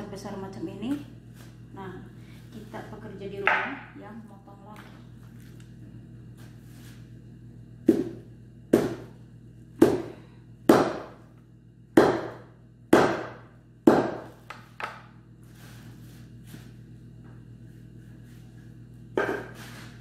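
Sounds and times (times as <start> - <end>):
knife chopping meat and bone: 7.9 - 9.1, 9.8 - 11.2, 12.0 - 14.5.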